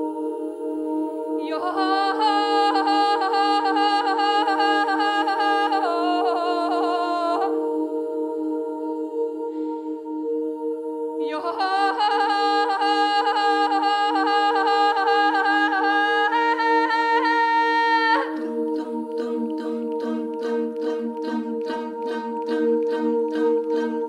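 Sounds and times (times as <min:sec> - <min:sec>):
choir singing low drone: 0:00.0 - 0:24.0
rhythmic vocal pulsing: 0:00.0 - 0:24.0
wavering melodic vocal line: 0:00.0 - 0:24.0.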